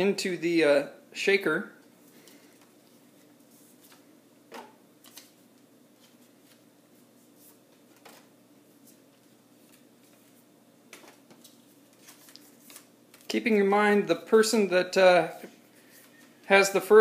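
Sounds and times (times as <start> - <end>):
paper rustling: 6.0 - 10.4, 11.0 - 13.4.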